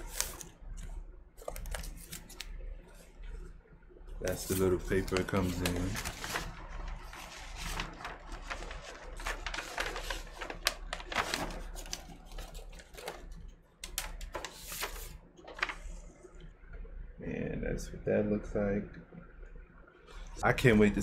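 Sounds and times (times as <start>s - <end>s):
paper sleeve rustling and crinkling: 0.0s - 0.5s, 1.4s - 3.0s, 4.2s - 16.0s.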